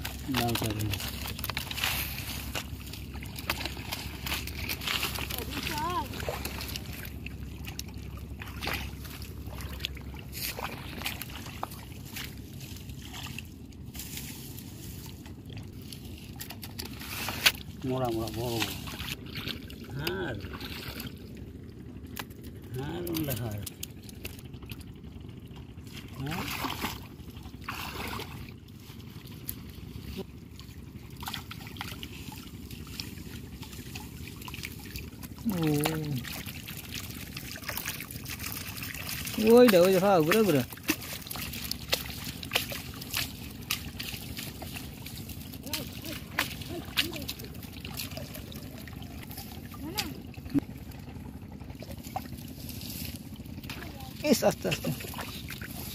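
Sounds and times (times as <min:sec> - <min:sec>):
muddy water sloshing: 0:00.0 - 0:55.9
steady low rumble: 0:00.0 - 0:55.9
water dripping: 0:33.8 - 0:51.0.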